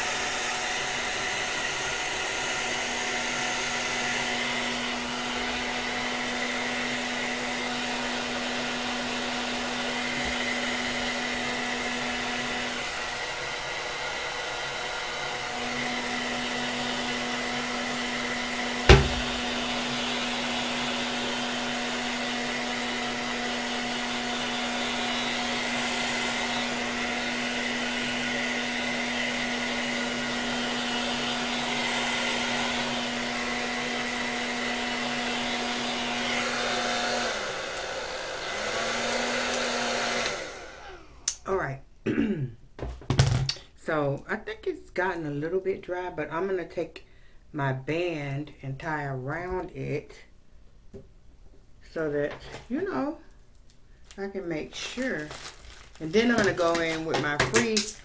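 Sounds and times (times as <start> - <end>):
hair dryer humming: 0.0 - 41.4, 51.9 - 53.3, 54.0 - 58.0
sharp knock: 18.9 - 19.4.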